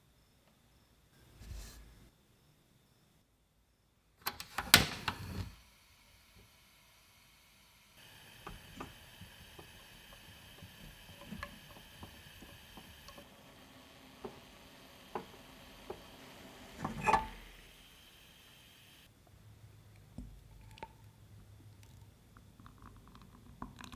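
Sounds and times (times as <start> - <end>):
gas burner hissing: 4.4 - 19.1
milk simmering with small pops: 7.9 - 19.1, 19.9 - 23.9.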